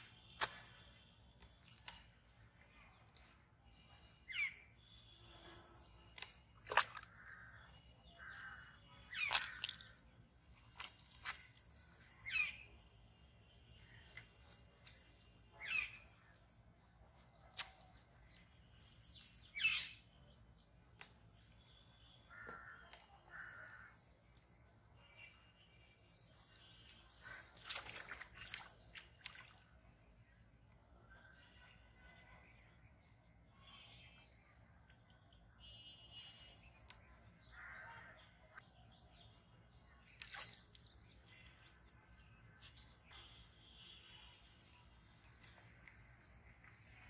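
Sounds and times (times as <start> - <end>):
fish splashing in water: 6.1 - 12.4, 26.7 - 29.8, 40.2 - 42.2
faint bird chirps: 13.4 - 16.4.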